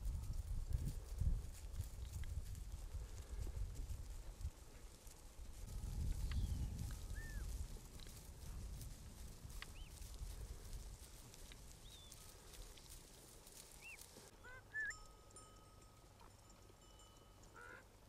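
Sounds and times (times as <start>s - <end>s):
low wind rumble: 0.0s - 13.9s
animal call: 13.8s - 15.0s, 17.5s - 17.9s.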